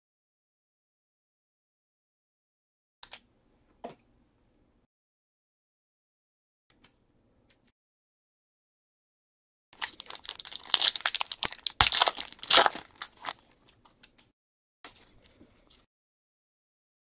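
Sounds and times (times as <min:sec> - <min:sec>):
cards rustling: 0:09.8 - 0:13.5
foil pack crinkling and tearing: 0:09.8 - 0:13.5.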